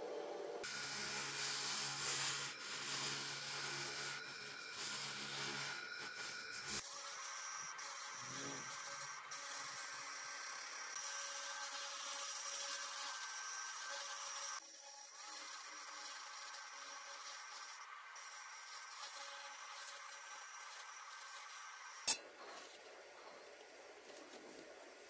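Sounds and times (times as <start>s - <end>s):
laser cleaning torch hissing: 0.6s - 22.7s.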